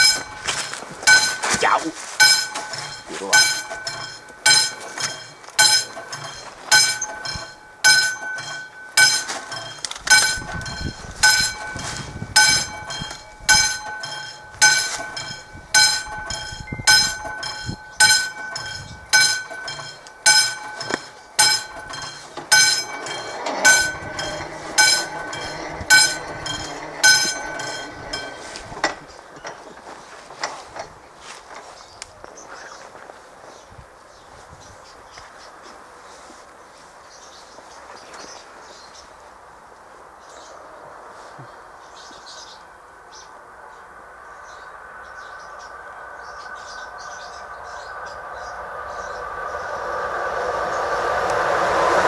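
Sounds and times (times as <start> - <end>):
level-crossing warning bell ringing: 0.0 - 30.6.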